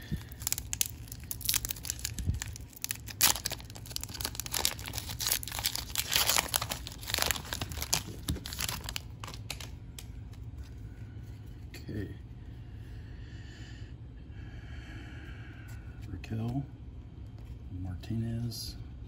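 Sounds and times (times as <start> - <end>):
foil wrapper tearing and crinkling: 0.0 - 9.8.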